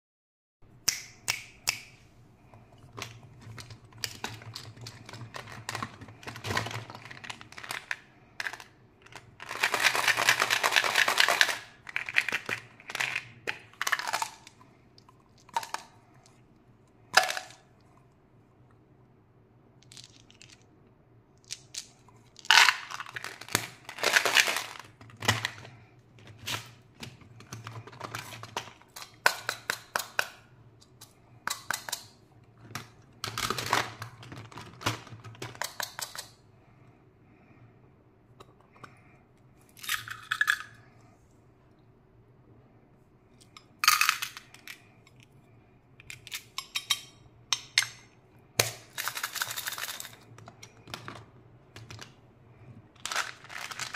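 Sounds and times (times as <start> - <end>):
plastic toys clattering: 2.8 - 14.6, 19.8 - 20.8, 21.4 - 36.4, 39.8 - 40.9, 43.8 - 44.9, 46.0 - 52.2, 53.0 - 53.9.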